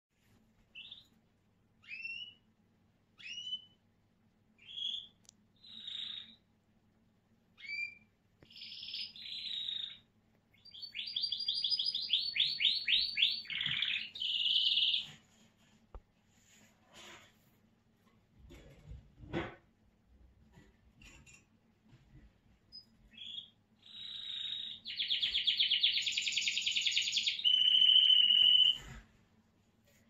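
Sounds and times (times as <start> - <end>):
canary chirping and trilling: 0.7 - 2.5, 3.2 - 3.9, 4.6 - 6.6, 7.5 - 15.7, 22.7 - 29.0.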